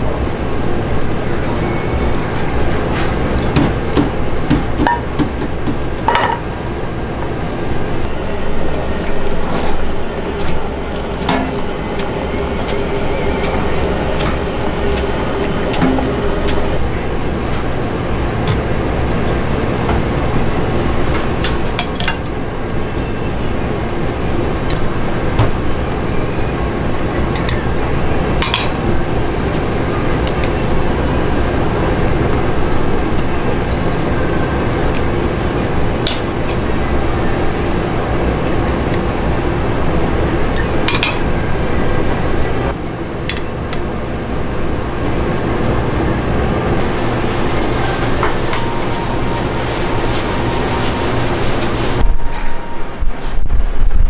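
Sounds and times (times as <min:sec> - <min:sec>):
steady low hum: 0:00.0 - 0:54.0
dishes and utensils clinking: 0:46.8 - 0:52.6.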